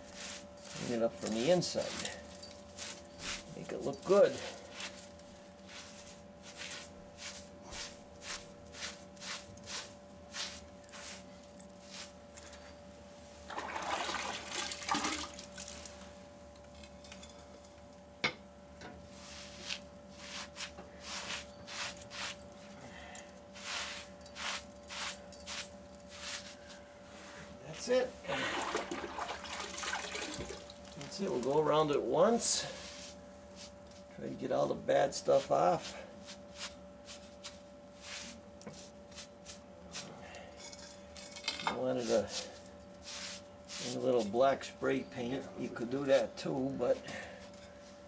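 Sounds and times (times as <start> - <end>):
wet sponge wiping mortar: 0.0 - 12.2, 19.1 - 22.4, 23.6 - 26.6, 32.4 - 33.8, 35.2 - 40.1, 42.0 - 44.4.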